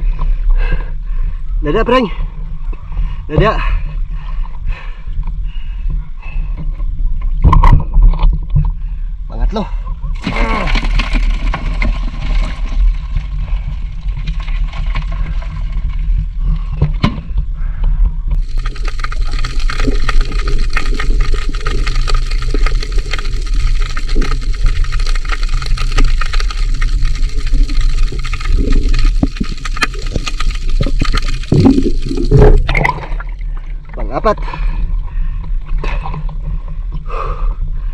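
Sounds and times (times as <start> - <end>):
low water rumble: 0.0 - 1.5, 2.1 - 37.9
crackling water hiss: 10.1 - 37.6.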